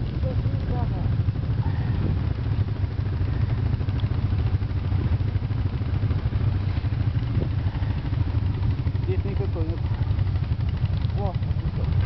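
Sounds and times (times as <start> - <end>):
quad bike engine running: 0.0 - 12.0.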